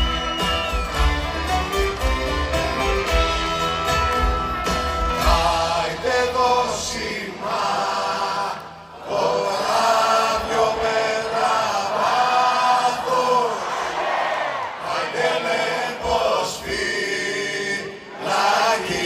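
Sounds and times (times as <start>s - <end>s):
band with bass and drums: 0.0s - 7.0s
concert audience singing along: 2.8s - 19.0s.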